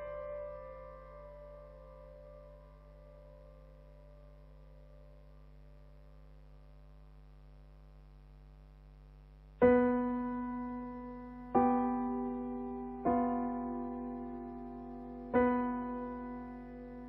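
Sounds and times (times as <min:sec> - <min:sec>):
keyboard chords ringing: 0:00.0 - 0:05.2
faint held drone: 0:00.0 - 0:07.7, 0:09.2 - 0:17.0.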